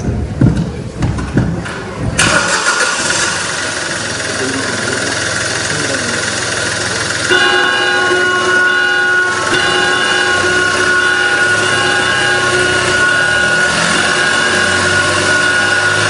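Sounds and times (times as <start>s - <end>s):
held horn-like chord: 7.2s - 16.0s.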